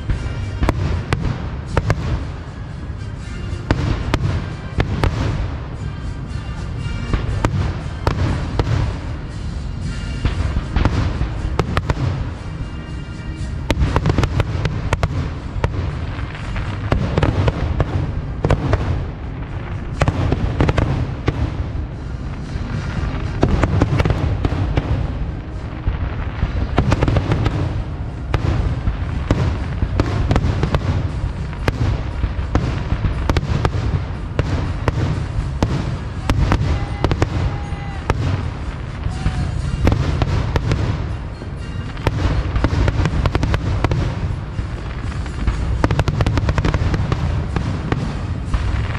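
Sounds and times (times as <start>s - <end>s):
fireworks bangs and crackles: 0.0s - 48.9s
low rumble: 0.0s - 48.9s.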